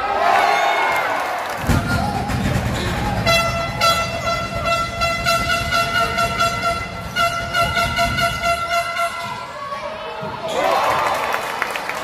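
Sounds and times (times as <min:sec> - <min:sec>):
horn high note: 0:03.2 - 0:09.5.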